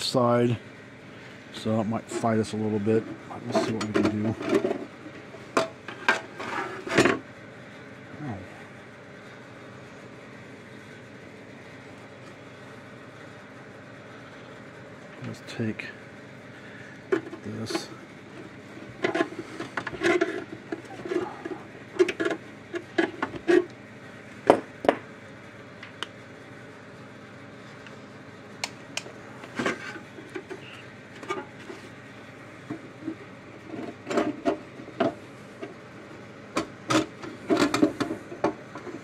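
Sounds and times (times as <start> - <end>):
clicks and knocks of handling parts: 17.1 - 17.9, 18.9 - 23.8, 36.5 - 39.0.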